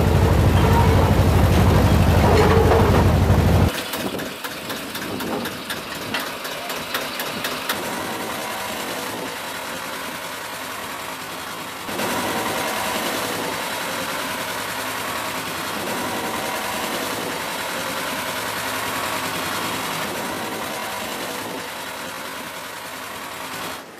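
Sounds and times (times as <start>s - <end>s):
loud low rumble: 0.0s - 3.7s
small railway engine running: 0.0s - 23.9s
sharp clicks and knocks: 1.5s - 7.8s.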